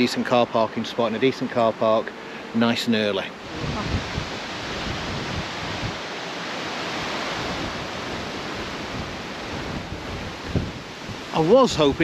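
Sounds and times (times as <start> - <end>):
wind rushing hiss: 2.4 - 12.0
wind buffeting microphone: 3.2 - 12.0.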